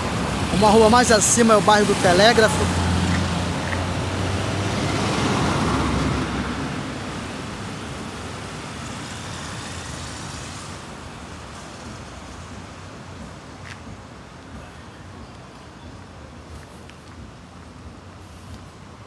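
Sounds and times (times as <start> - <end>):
vehicle passing close by: 0.0 - 10.9
background traffic noise: 0.0 - 19.0.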